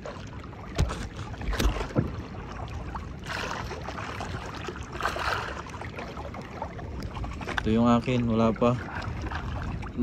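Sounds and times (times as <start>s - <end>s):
water lapping against boat hull: 0.0s - 10.0s
wooden boat knocking: 0.7s - 2.4s.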